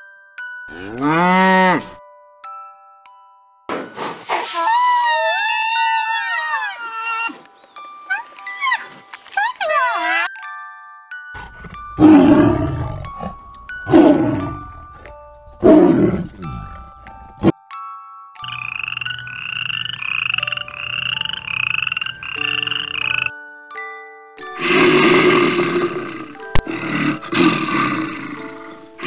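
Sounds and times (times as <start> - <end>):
light chiming music: 0.0 - 3.7, 4.8 - 29.0
rasping croak-like calls: 11.4 - 17.5, 18.4 - 23.4, 24.6 - 29.0
tiger growling: 11.4 - 17.5, 24.6 - 29.0.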